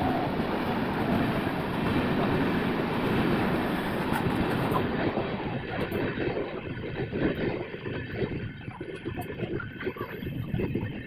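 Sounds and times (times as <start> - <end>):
train rumble and wheel clatter: 0.0 - 11.0.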